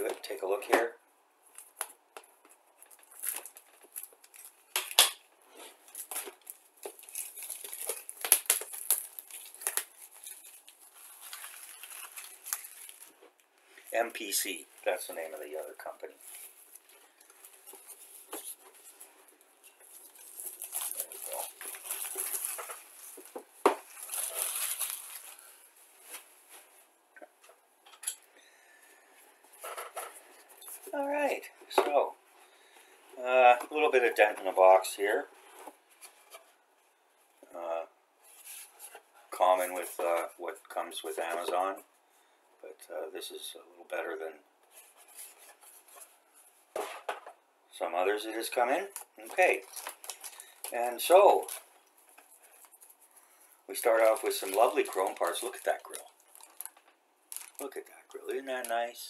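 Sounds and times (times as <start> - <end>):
shrink wrap crinkling and tearing: 2.8 - 5.2, 5.8 - 26.2, 48.5 - 59.0.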